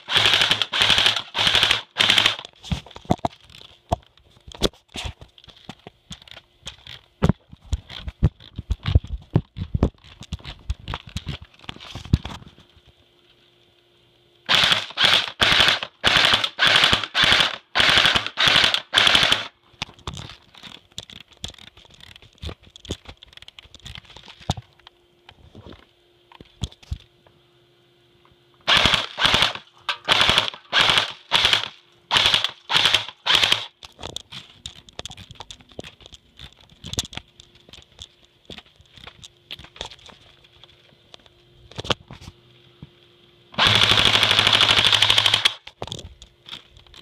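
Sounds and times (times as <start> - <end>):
airsoft rifle firing bursts: 0.0 - 2.4, 14.5 - 19.5, 28.7 - 33.8, 43.6 - 45.6.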